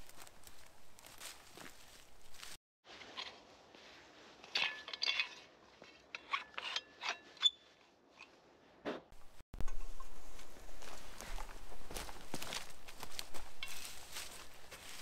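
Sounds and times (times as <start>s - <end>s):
metal shovel parts scraping: 2.9s - 8.4s, 13.5s - 15.0s.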